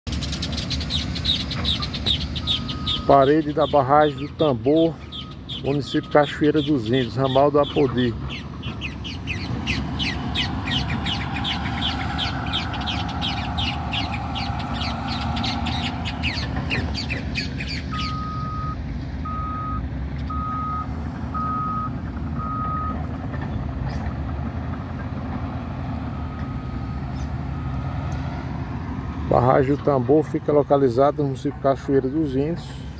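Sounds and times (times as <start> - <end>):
bird chirping: 0.1 - 18.5
earthmoving machines engine rumble: 0.1 - 32.9
reversing alarm beeping: 2.4 - 3.3, 4.0 - 7.4, 17.9 - 23.0, 26.0 - 27.9.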